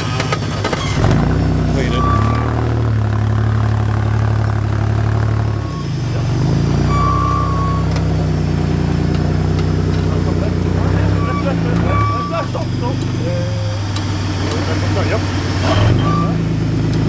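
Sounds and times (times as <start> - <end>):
engine running under load: 0.0 - 17.0.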